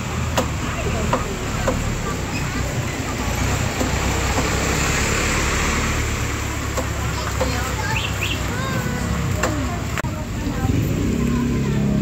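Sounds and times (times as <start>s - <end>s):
small truck engine driving past: 0.6s - 8.5s.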